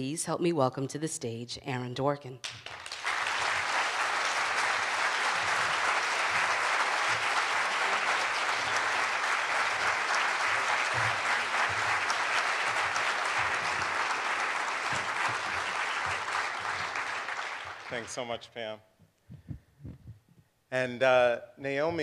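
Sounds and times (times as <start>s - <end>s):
audience applauding: 2.4s - 18.5s.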